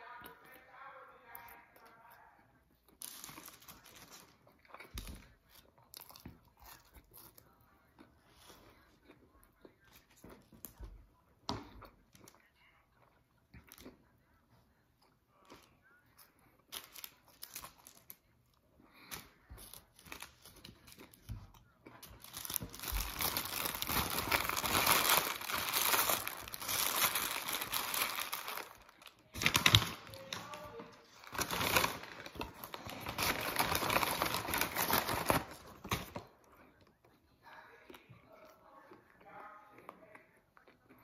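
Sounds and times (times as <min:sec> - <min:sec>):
foil and paper bag crumpling: 0:22.2 - 0:35.9.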